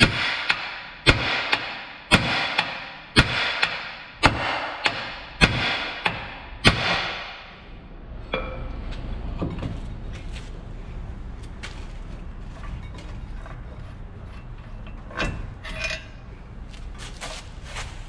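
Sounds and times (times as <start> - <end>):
hammer striking steel: 0.0 - 7.6, 8.3 - 8.8.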